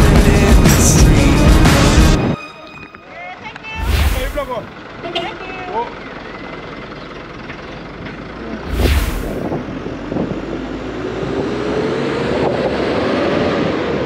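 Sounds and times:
road and engine noise: 0.0 - 14.0
loud whoosh: 3.8 - 4.7, 8.7 - 10.2
wind on microphone: 8.7 - 10.7.

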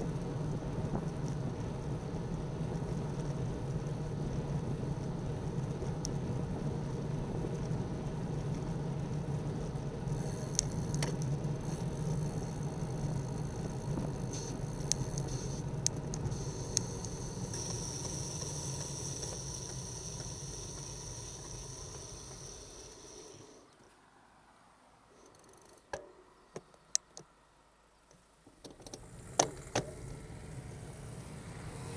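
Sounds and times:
road rumble: 0.0 - 31.9
thin high whirr: 9.7 - 23.7.

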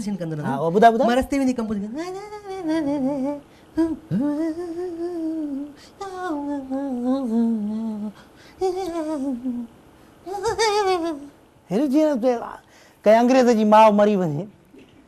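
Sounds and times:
man singing wordless phrases: 0.0 - 9.7, 10.3 - 14.5
man breathing: 8.1 - 8.6, 12.6 - 13.0.

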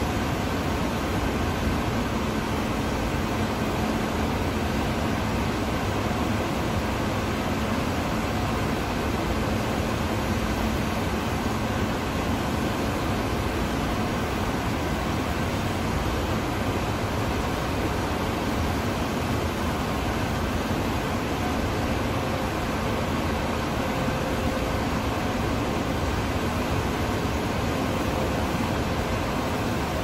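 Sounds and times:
workshop machinery hum: 0.0 - 30.0.

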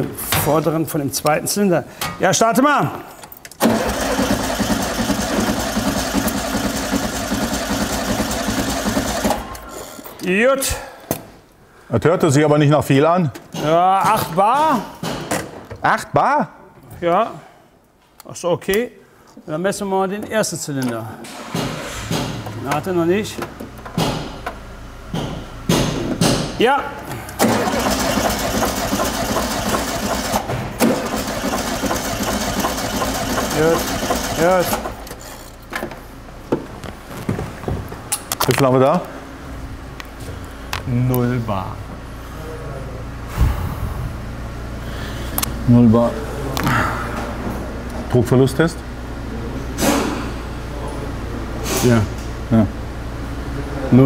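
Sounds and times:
car engine cranking on starter: 3.5 - 9.7, 27.3 - 35.6.

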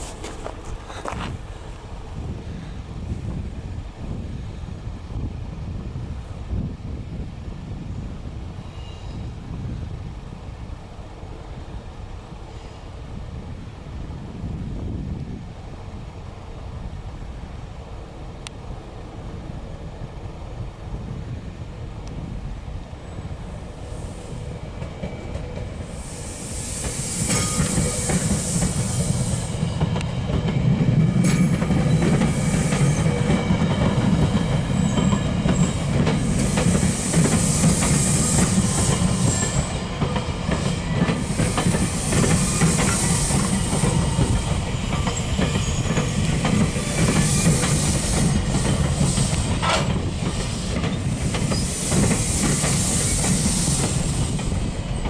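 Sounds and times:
train rumble: 0.0 - 55.0
high hiss: 21.1 - 55.0
train wheels clicking over rail joints: 23.9 - 55.0
high wheel squeals: 25.9 - 29.6, 34.6 - 39.9, 40.5 - 55.0.

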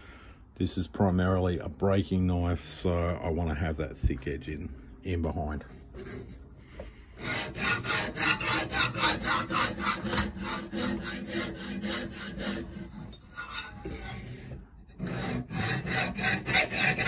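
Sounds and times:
sharpening stone grinding knife edge: 12.8 - 14.3.

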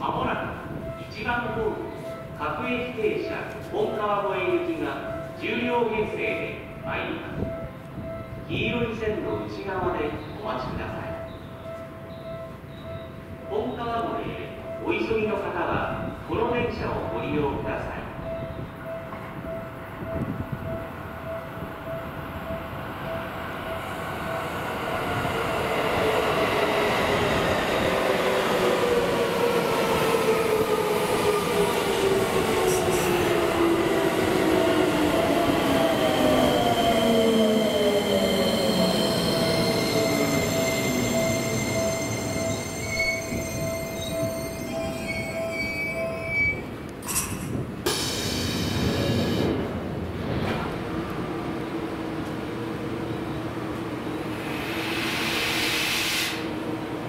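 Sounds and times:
high-pitched tones: 29.6 - 47.2
electric train inverter whine: 50.7 - 57.0.

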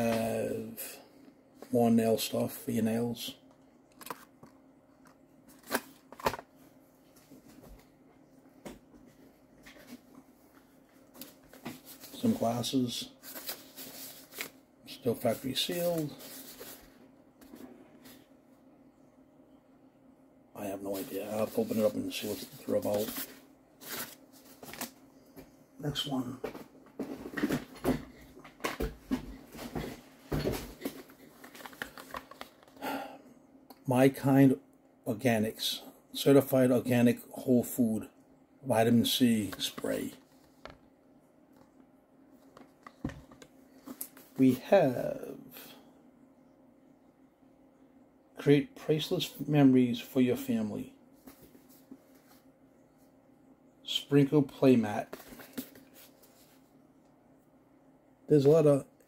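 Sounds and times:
boxes knocking and rustling: 26.5 - 32.4.

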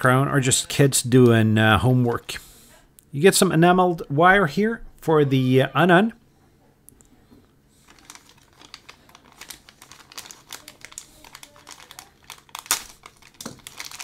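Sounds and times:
plastic bag crinkling: 7.8 - 14.0.

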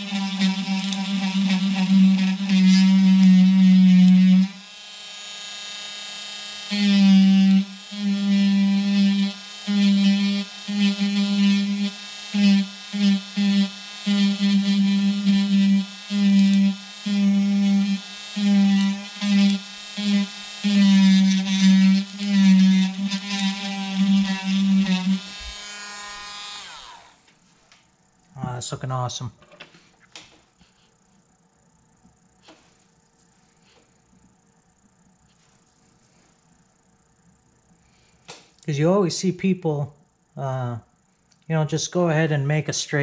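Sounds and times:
rotary tool buzzing: 0.0 - 27.3.

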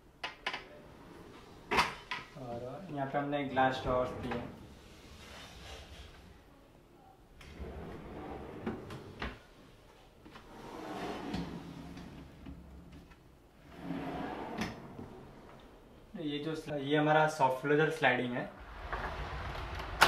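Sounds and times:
drawer sliding on runners: 3.6 - 6.3, 7.4 - 9.4, 10.3 - 12.9, 13.6 - 15.8.

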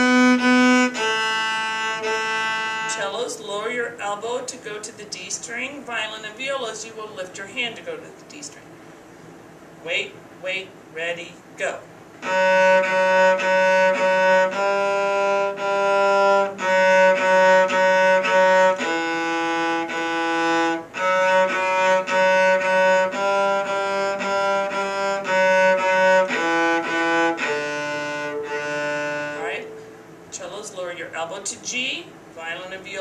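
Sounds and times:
cello playing a fiddle tune: 0.0 - 3.6, 12.2 - 30.1.

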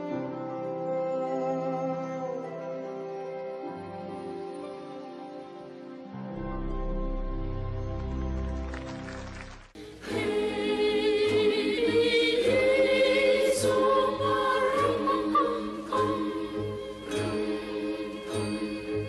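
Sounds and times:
choir singing: 9.8 - 19.0.

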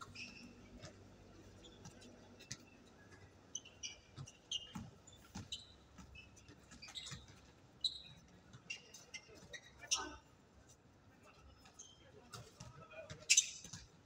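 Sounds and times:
sneakers squeaking on court: 0.0 - 10.2, 11.6 - 14.0
basketball bouncing: 4.0 - 7.6, 12.3 - 14.0.

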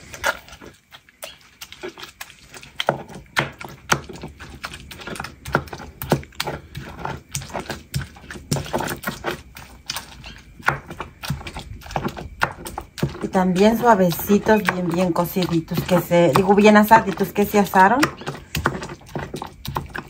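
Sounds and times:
stone pestle grinding in mortar: 0.0 - 20.0.

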